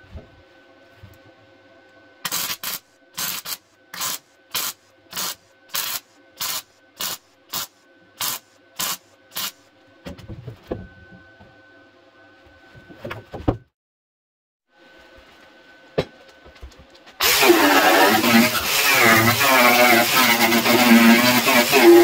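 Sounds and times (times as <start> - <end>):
short tack welds: 2.2 - 9.6, 17.2 - 22.0.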